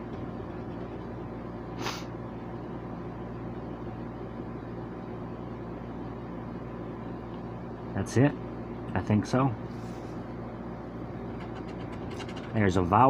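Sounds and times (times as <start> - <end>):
low background hum: 0.0 - 13.0
person sniffing: 1.8 - 2.1.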